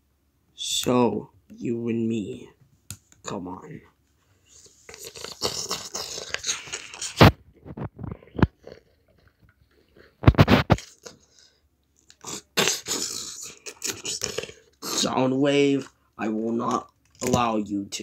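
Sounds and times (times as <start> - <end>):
hands rustling and scraping: 4.1 - 11.2.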